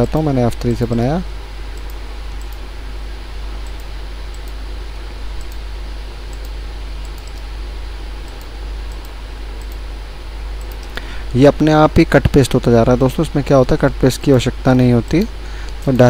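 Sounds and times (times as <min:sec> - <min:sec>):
low electrical hum and hiss: 0:00.0 - 0:16.0
computer mouse clicks: 0:01.7 - 0:02.6, 0:03.6 - 0:04.6, 0:05.4 - 0:05.6, 0:06.3 - 0:07.5, 0:08.2 - 0:09.8, 0:10.6 - 0:11.1.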